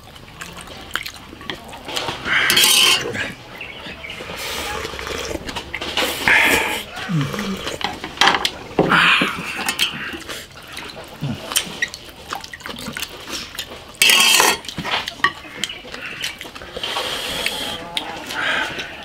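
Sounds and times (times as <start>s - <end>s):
soup slurping: 0.0s - 15.2s
ladle and spoons clinking on bowls: 0.5s - 4.3s, 5.5s - 16.4s.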